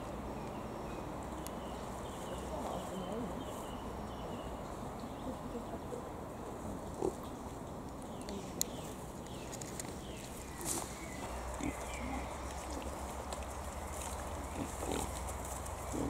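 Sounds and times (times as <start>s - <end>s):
steady rustle: 8.4s - 16.0s
wild boar grunting: 11.5s - 13.1s, 14.4s - 16.0s.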